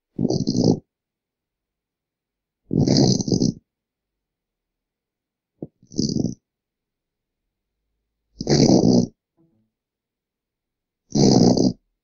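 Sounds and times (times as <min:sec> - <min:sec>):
short snort: 0:00.2 - 0:00.8, 0:02.7 - 0:03.6, 0:05.6 - 0:06.4, 0:08.4 - 0:09.2, 0:11.1 - 0:11.8
woman snoring: 0:02.7 - 0:03.6, 0:05.7 - 0:06.4, 0:08.4 - 0:09.2, 0:11.1 - 0:11.8.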